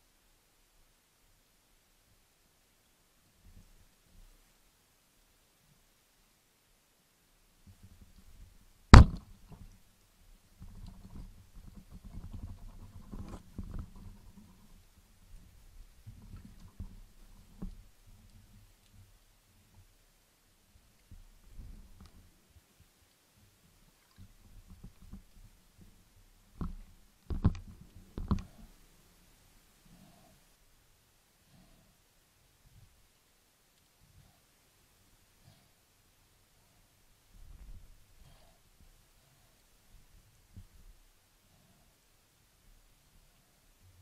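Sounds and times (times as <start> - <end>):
low underwater thuds: 7.7 - 9.8
sharp knocks on speargun: 9.0 - 9.2
speargun crack underwater: 9.0 - 9.6
small knocks in water: 9.0 - 9.8, 26.6 - 28.5.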